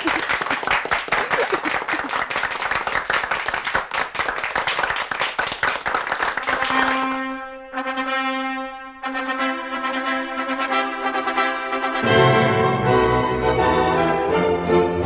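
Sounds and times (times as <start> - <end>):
crowd applause: 0.0 - 7.4
brass held notes: 6.6 - 15.0.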